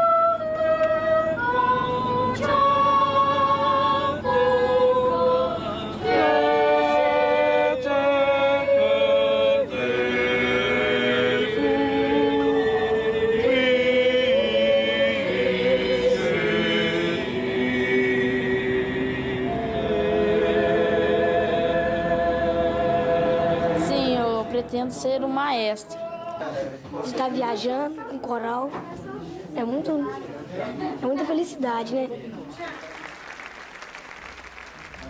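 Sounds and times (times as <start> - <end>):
children's choir singing a cappella: 0.0 - 25.1.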